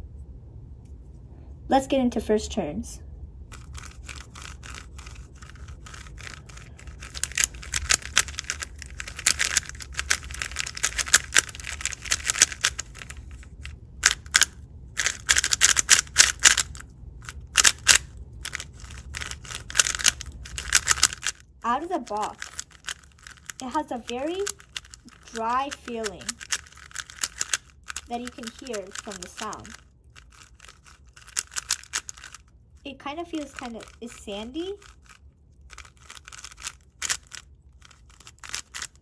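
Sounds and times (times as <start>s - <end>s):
puzzle cube clicking and scraping: 3.5s - 39.0s.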